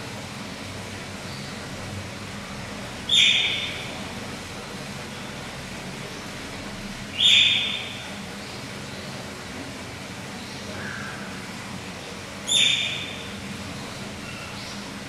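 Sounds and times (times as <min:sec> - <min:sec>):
steady low hum: 0:00.0 - 0:15.0
otter calling: 0:03.0 - 0:04.1, 0:07.1 - 0:08.1, 0:12.4 - 0:15.0.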